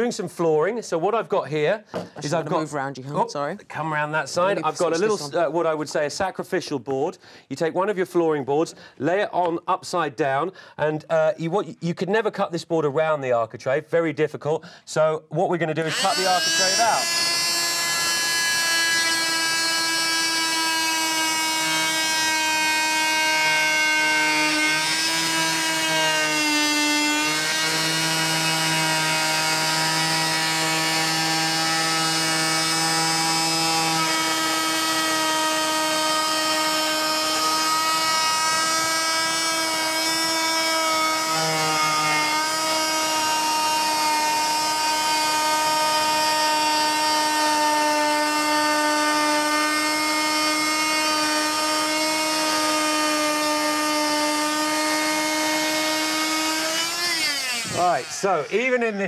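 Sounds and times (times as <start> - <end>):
oscillating multi-tool buzzing whine: 15.8 - 58.7.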